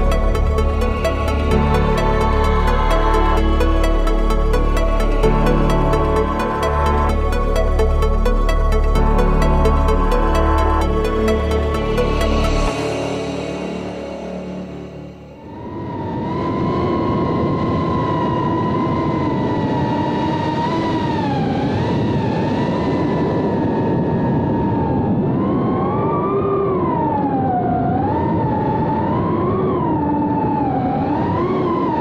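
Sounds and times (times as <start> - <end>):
drone motors whining: 0.0 - 15.6
steady rushing noise: 0.0 - 25.6.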